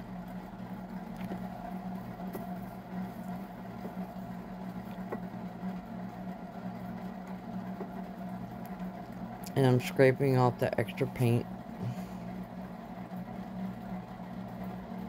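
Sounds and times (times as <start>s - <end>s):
low mechanical hum: 0.0s - 15.0s
faint clicks and taps: 7.2s - 8.0s.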